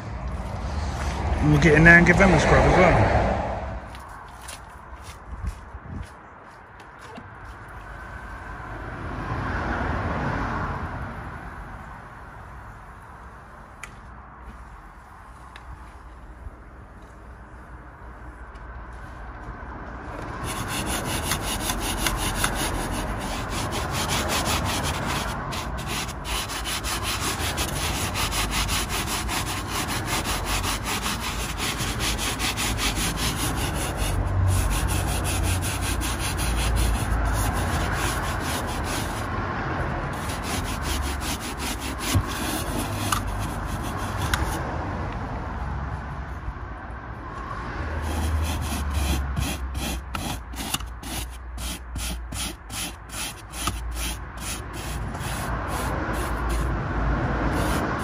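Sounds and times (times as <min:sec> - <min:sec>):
stiff brush scrubbing upholstery: 0:20.4 - 0:39.3, 0:40.1 - 0:44.6, 0:48.0 - 0:56.8, 0:57.4 - 0:58.0.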